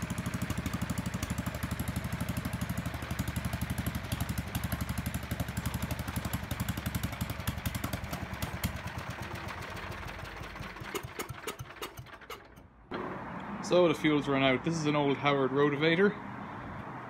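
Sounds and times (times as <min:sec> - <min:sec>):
single-cylinder engine idling: 0:00.0 - 0:13.0.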